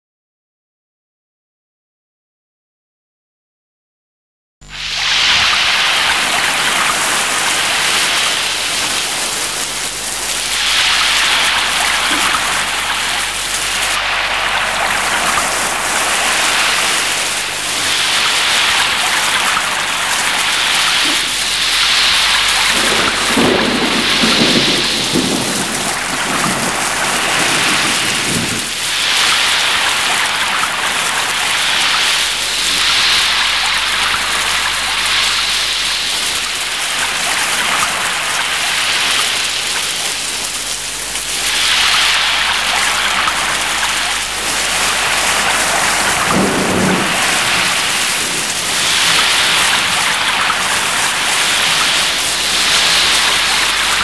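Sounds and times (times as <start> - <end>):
low rumble: 4.6 - 29.1
heavy rain on roofs: 4.6 - 54.0.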